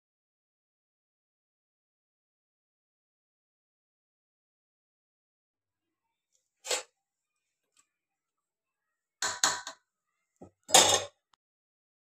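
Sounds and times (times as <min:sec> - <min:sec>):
metal ladle clinking on steel pot: 0:09.2 - 0:09.8, 0:10.7 - 0:11.1.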